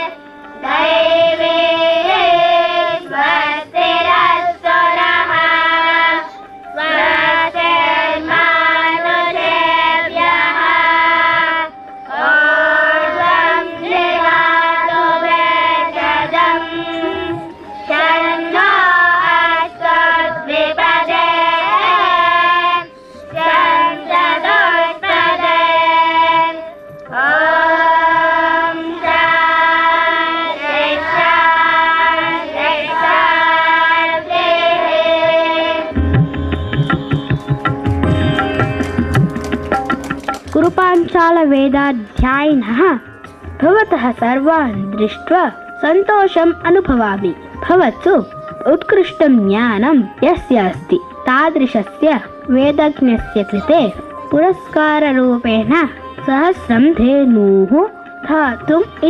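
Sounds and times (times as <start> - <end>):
children singing a chant: 0.0 - 36.0.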